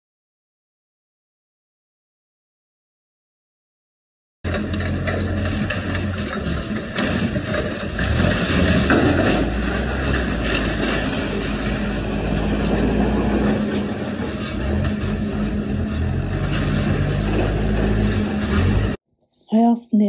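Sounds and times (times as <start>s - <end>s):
diesel engine: 4.5s - 19.0s
metal crunching and tearing: 4.5s - 19.0s.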